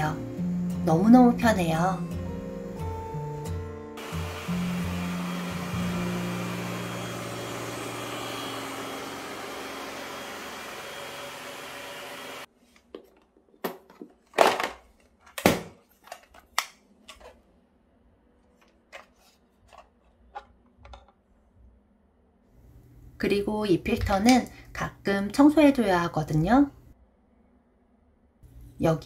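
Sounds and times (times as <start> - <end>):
robot vacuum motor hum: 4.0 - 12.5
plastic clicks and knocks: 19.8 - 21.2.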